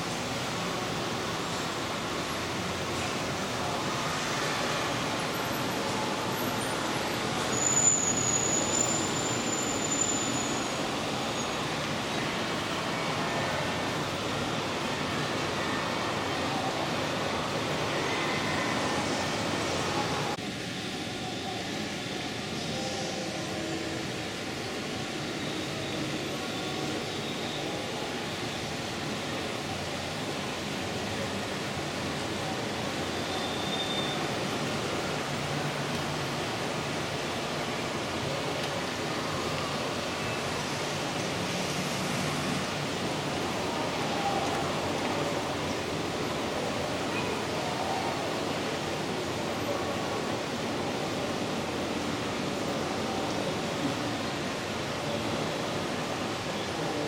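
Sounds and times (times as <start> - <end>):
model train rolling on track: 0.0 - 57.0
thin high squeal: 7.5 - 11.6.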